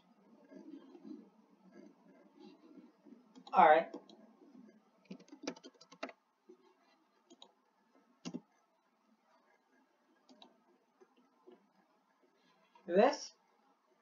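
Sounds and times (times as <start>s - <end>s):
keyboard typing clicks: 5.0s - 6.2s, 8.2s - 8.4s.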